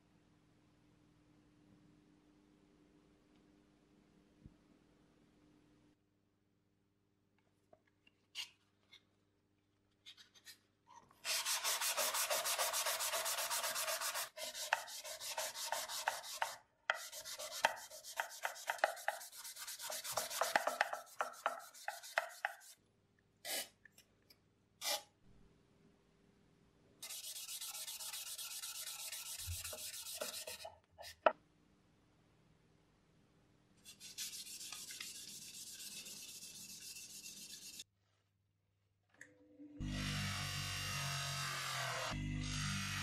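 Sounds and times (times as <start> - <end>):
sandpaper rubbing on metal: 11.2 - 22.8, 27.0 - 30.7, 33.9 - 37.8.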